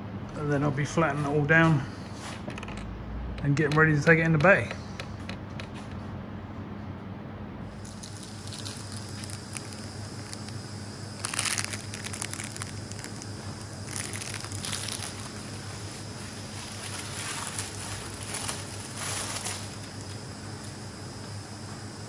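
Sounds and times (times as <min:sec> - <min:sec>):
steady low hum: 0:00.0 - 0:22.0
packaging crinkling: 0:07.7 - 0:20.8.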